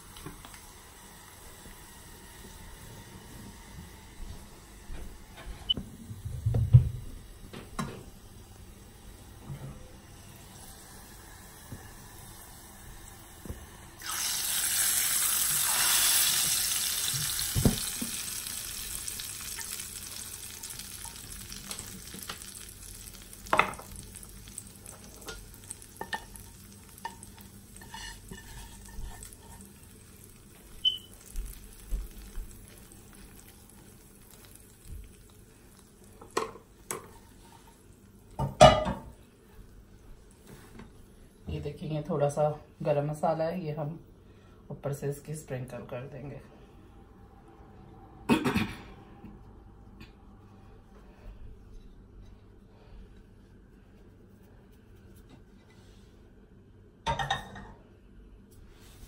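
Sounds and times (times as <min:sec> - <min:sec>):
hot oil sizzling: 0:10.2 - 0:39.1
knocks of pan and dish: 0:38.4 - 0:39.1.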